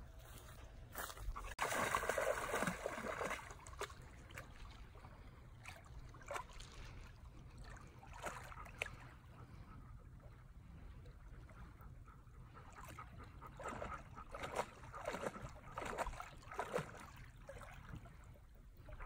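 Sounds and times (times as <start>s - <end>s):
shallow water splashing: 1.4s - 9.6s, 12.5s - 19.0s.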